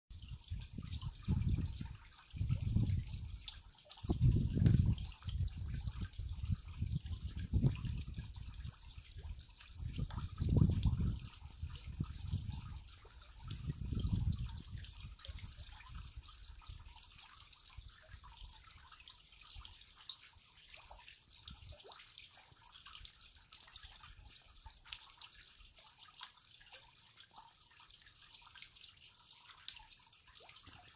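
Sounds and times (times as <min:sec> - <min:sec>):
water drops plopping into pool: 0:00.2 - 0:30.9.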